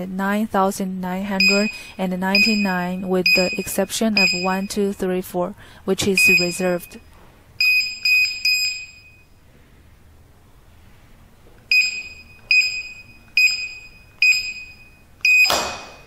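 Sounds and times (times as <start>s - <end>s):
short high keypad beeps: 11.7s - 16.0s.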